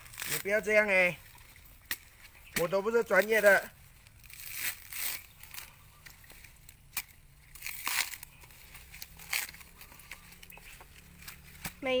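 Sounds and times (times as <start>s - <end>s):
coconut husk ripping: 0.0s - 0.9s, 1.8s - 11.9s
sharp crack: 6.9s - 8.4s.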